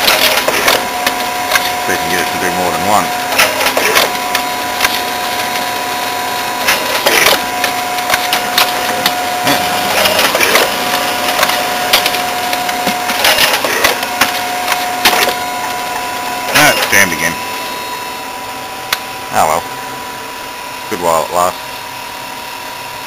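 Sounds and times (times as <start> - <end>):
copier mechanism clicks and clatter: 0.0 - 1.8, 3.3 - 5.7, 6.6 - 15.4
copier motor whine: 0.0 - 23.0.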